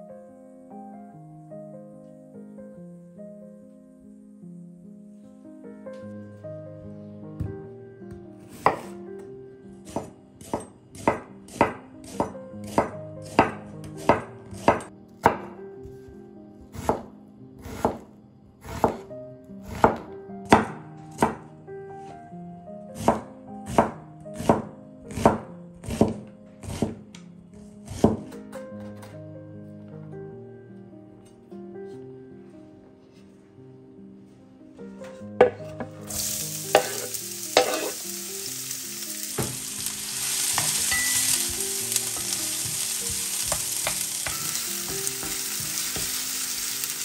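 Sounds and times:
soft background music: 0:00.0 - 0:47.0
knife chopping on cutting board: 0:08.5 - 0:08.9, 0:09.9 - 0:15.5, 0:16.8 - 0:18.0, 0:18.7 - 0:19.0, 0:19.7 - 0:21.4, 0:23.0 - 0:27.0, 0:27.8 - 0:28.9, 0:35.4 - 0:36.0, 0:36.7 - 0:38.0, 0:39.4 - 0:39.7, 0:42.6 - 0:46.2.

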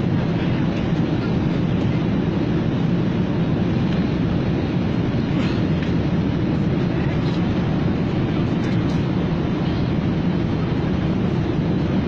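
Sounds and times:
airliner engines droning: 0:00.0 - 0:12.0.

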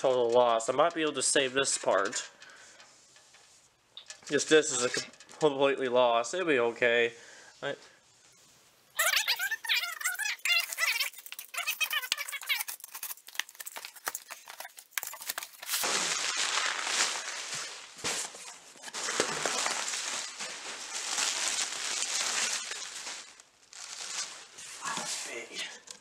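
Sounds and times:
bubble wrap crinkling: 0:09.0 - 0:25.5.

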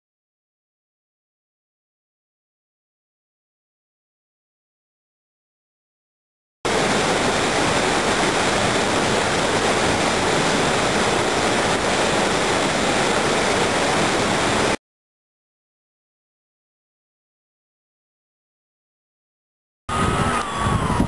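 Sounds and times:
wastewater rushing: 0:06.7 - 0:14.8.

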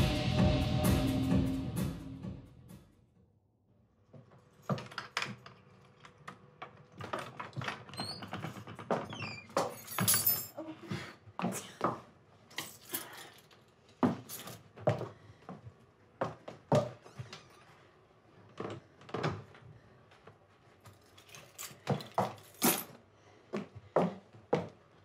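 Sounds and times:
keys jangling: 0:09.6 - 0:10.6, 0:12.6 - 0:13.6, 0:14.2 - 0:14.6, 0:20.9 - 0:23.0.

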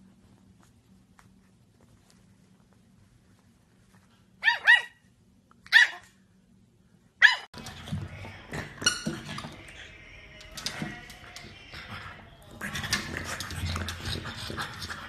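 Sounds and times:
rustling: 0:00.0 - 0:04.5
puppy yapping: 0:04.4 - 0:05.0, 0:05.7 - 0:06.1, 0:07.2 - 0:07.5.

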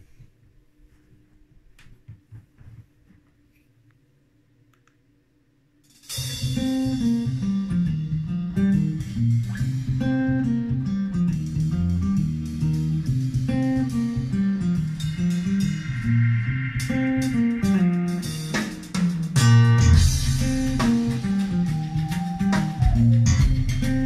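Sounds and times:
guitar music with bass line: 0:06.2 - 0:24.0.

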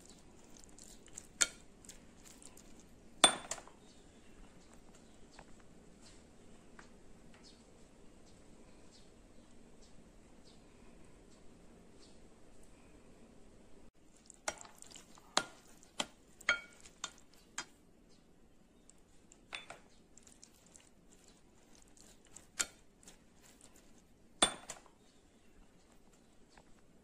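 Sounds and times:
meat mixed in glass bowl: 0:00.0 - 0:03.9, 0:14.0 - 0:17.9, 0:18.7 - 0:25.0.

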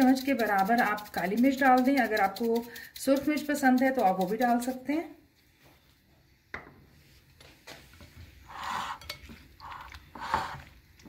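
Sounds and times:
spatula knocking bowl: 0:00.0 - 0:04.7.

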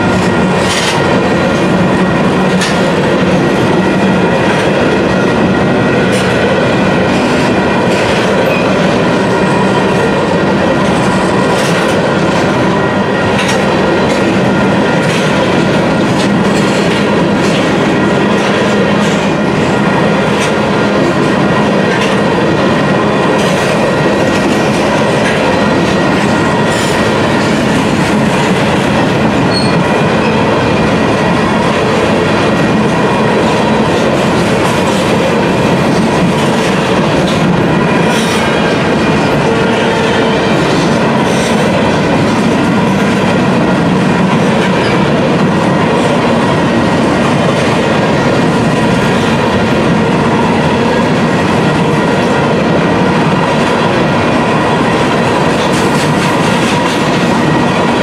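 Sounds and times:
freight train wheels on rails: 0:00.0 - 0:58.0.

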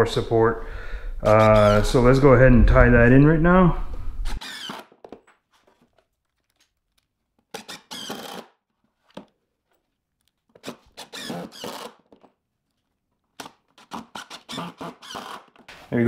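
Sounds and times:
drill driving screws into wood: 0:04.2 - 0:05.2, 0:07.5 - 0:08.6, 0:10.6 - 0:12.2, 0:13.4 - 0:15.8.

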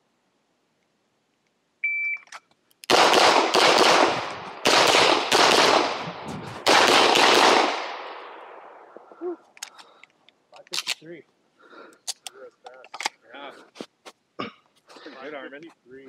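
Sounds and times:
electronic timer beep: 0:01.8 - 0:02.3
handgun shots echoing: 0:02.9 - 0:08.3.

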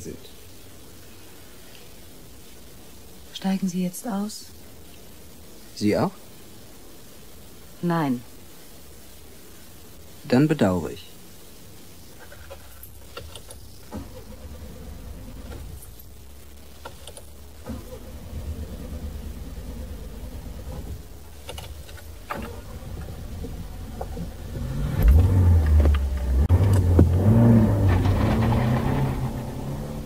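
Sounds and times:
car engine rumbling and revving: 0:13.7 - 0:16.0, 0:17.4 - 0:30.0
soft engine knocks: 0:25.0 - 0:27.2.

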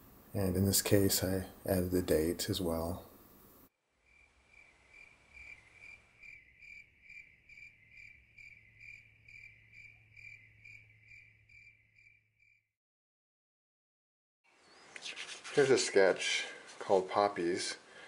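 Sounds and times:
cricket chirping: 0:04.0 - 0:12.6.

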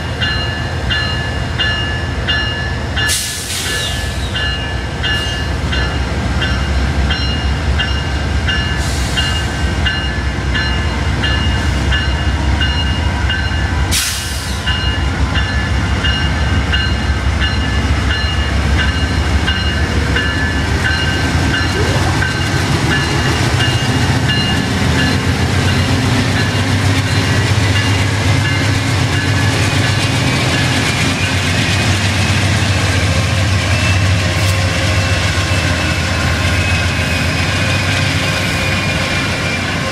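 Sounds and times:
diesel locomotive throttling up: 0:17.5 - 0:39.8.

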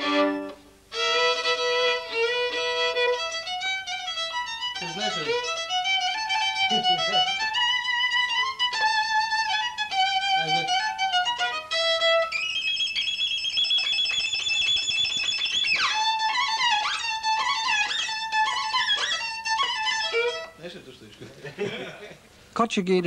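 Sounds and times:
bowed violin melody: 0:00.0 - 0:20.6.

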